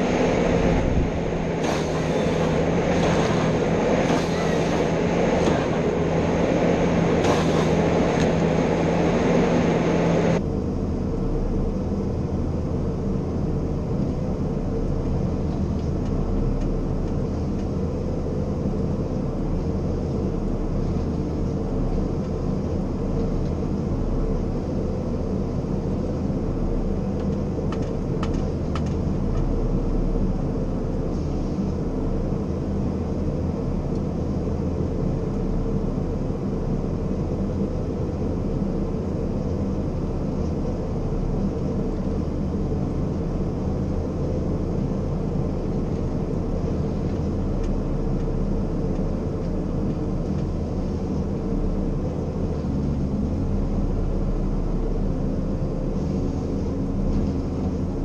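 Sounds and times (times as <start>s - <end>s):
diesel engine and hydraulics drone: 0.0s - 58.0s.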